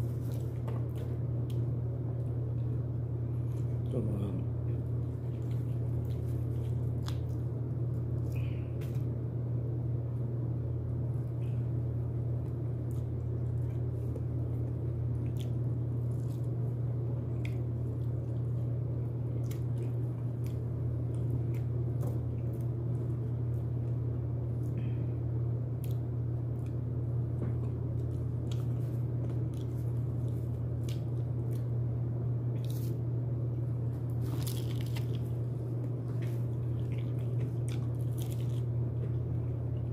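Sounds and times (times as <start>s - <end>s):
low hum: 0.0s - 39.9s
person chewing crunchy food: 4.8s - 9.2s, 12.4s - 25.0s, 25.7s - 31.8s, 32.5s - 39.9s.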